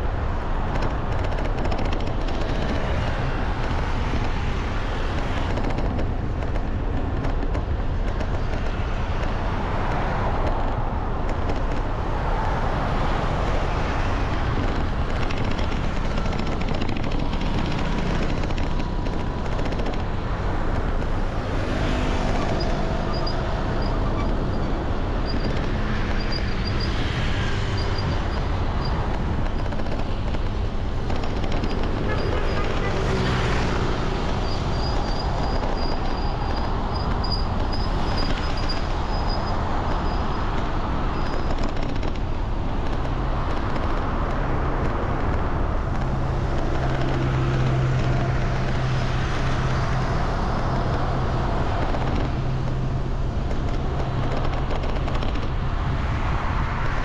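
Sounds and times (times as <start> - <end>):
moving vehicle rumble: 0.0 - 57.0
road and wind noise: 0.0 - 57.0.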